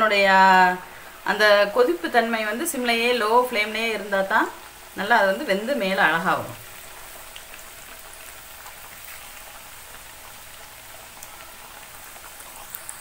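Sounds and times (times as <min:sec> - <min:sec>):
oil sizzling while deep-frying: 0:00.0 - 0:13.0
faint fine crackles: 0:06.6 - 0:13.0.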